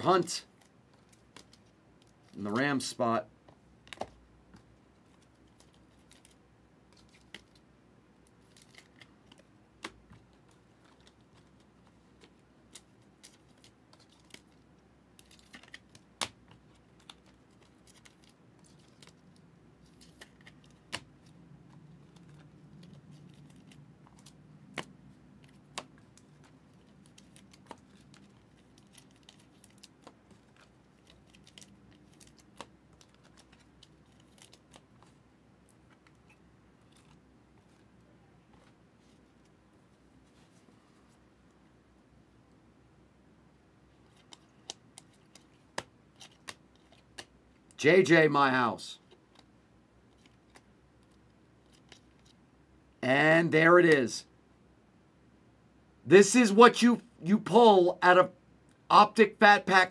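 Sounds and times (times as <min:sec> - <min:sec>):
trading cards clicking and snapping: 0:15.2 - 0:19.2, 0:19.9 - 0:35.1, 0:44.1 - 0:47.4.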